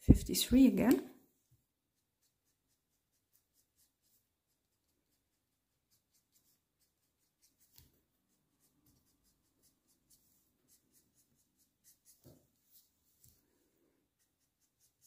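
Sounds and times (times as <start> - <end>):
marker scratching on paper: 1.8 - 13.0, 14.1 - 15.0.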